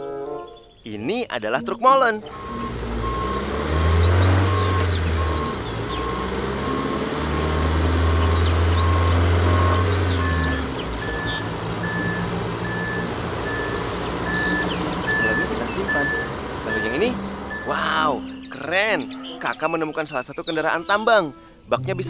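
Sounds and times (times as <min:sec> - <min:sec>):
diesel engine drone: 0:01.5 - 0:19.5
higher-pitched backup beeper: 0:01.6 - 0:07.6, 0:08.2 - 0:19.4
backup alarm beeping: 0:01.6 - 0:19.4.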